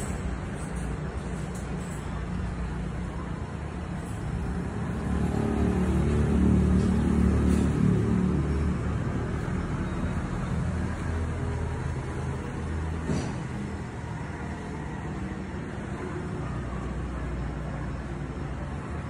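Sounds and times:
vehicle engine rumble: 0:00.0 - 0:19.0.

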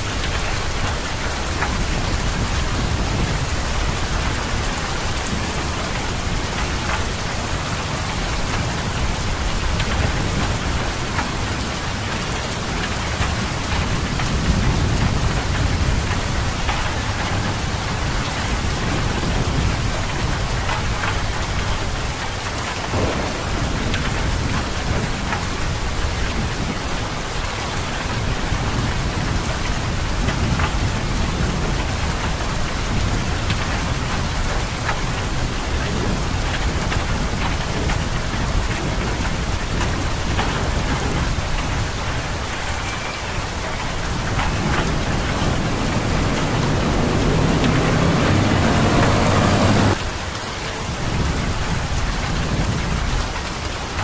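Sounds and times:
heavy rain pouring: 0:00.0 - 0:54.0
low thunder rumbling: 0:22.8 - 0:27.4, 0:43.3 - 0:50.0.

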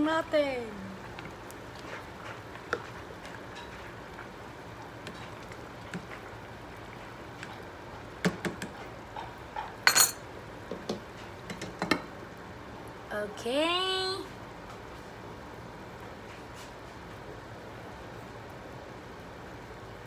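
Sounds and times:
ladle stirring in saucepan: 0:01.0 - 0:09.8
metal clanks on pan: 0:09.6 - 0:10.2.

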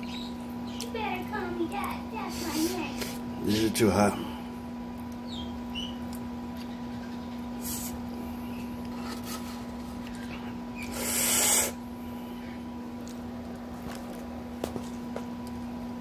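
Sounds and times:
low electrical hum: 0:00.0 - 0:16.0
squeeze bottle hissing spurt: 0:10.8 - 0:11.8.

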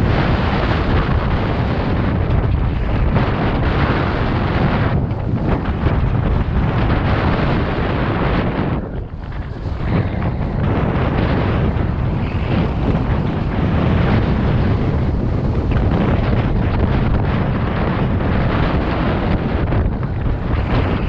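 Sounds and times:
wind buffeting microphone: 0:00.0 - 0:21.0
snowboard hissing over snow: 0:09.5 - 0:14.0.

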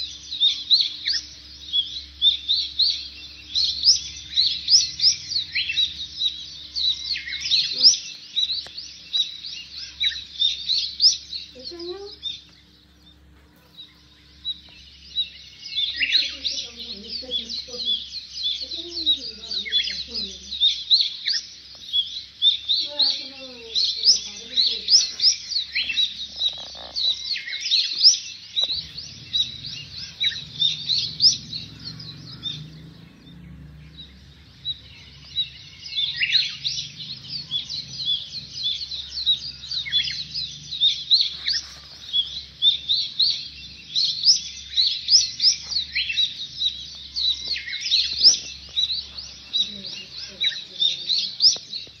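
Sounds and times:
small birds chirping: 0:00.0 - 0:52.0.

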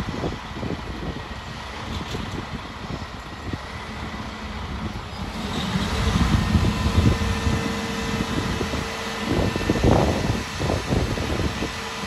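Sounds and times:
crane engine rumbling: 0:00.0 - 0:12.0
steady whine: 0:03.8 - 0:12.0.

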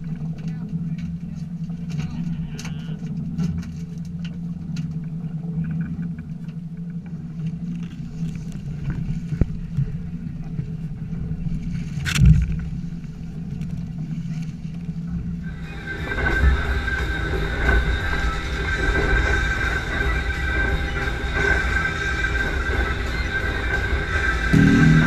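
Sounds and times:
outboard motors idling: 0:12.5 - 0:25.0.

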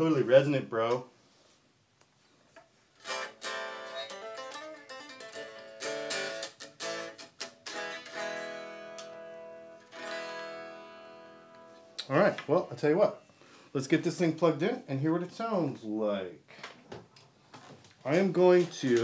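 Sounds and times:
unplugged electric guitar strumming: 0:03.0 - 0:12.0.

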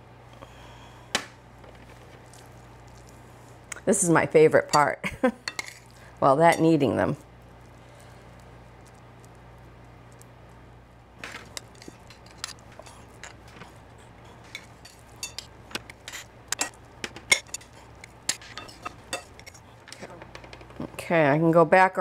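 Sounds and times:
spoon scraping glass bowl: 0:11.4 - 0:20.0.

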